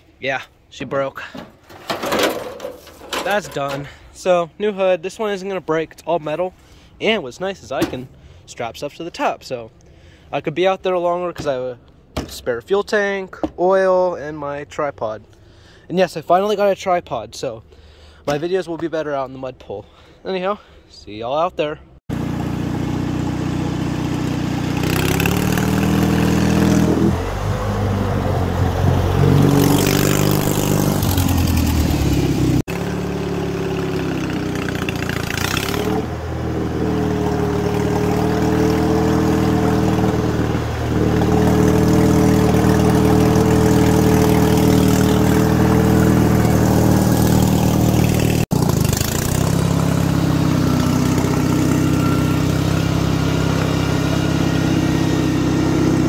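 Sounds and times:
lawn mower engine running hard: 22.1s - 56.0s.

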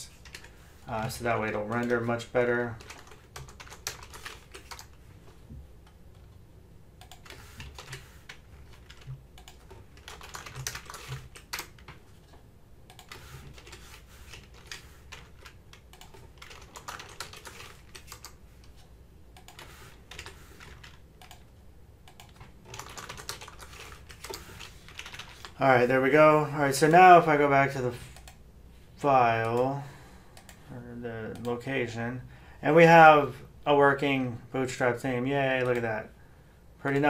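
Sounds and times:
typing on computer keyboard: 0.2s - 0.5s, 1.6s - 2.1s, 2.7s - 5.0s, 7.0s - 12.0s, 12.9s - 18.8s, 19.4s - 21.5s, 22.1s - 25.6s.

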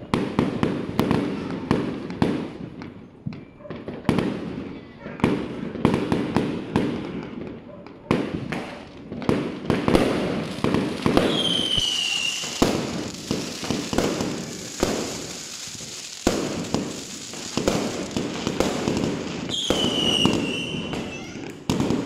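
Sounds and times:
fireworks bangs and pops: 0.0s - 22.0s
firework falling whistle: 11.0s - 21.5s.

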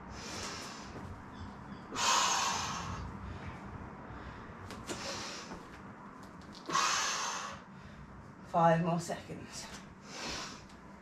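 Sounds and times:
woman exhaling forcefully: 2.0s - 3.1s, 6.7s - 7.7s.

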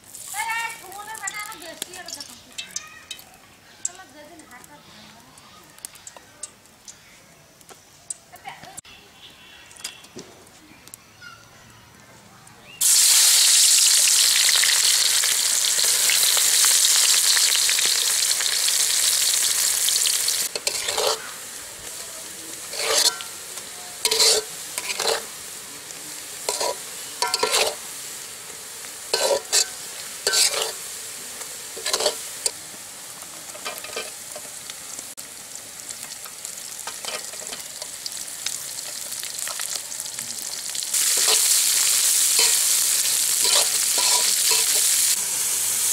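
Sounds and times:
onions sizzling in oil: 0.0s - 8.8s, 12.7s - 45.9s
metal spatula scraping pan: 20.5s - 21.3s, 22.6s - 23.4s, 24.0s - 25.3s, 26.4s - 27.9s, 29.1s - 30.8s, 31.8s - 32.2s, 36.9s - 37.7s, 42.4s - 45.1s.

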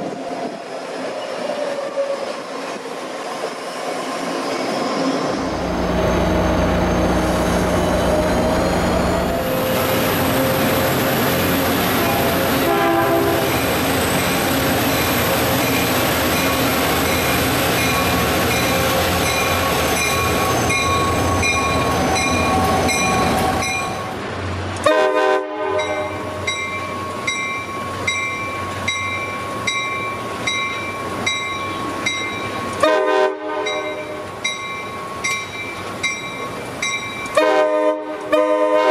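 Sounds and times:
diesel trains: 0.0s - 38.9s
train horn short toots: 11.9s - 13.6s, 24.8s - 26.5s, 32.8s - 34.2s, 37.4s - 38.9s.

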